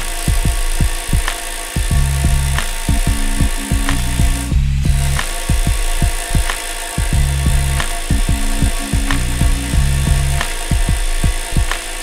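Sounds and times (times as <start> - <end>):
electronic music: 0.0 - 12.0
kick drum beat: 0.2 - 12.0
low bass line: 1.9 - 11.1.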